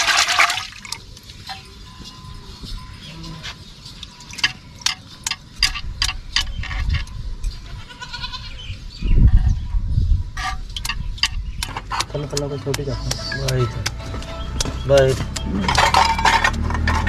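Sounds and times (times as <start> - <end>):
small wet clicks and splashes: 0.1 - 1.6
goat bleating: 7.6 - 8.6.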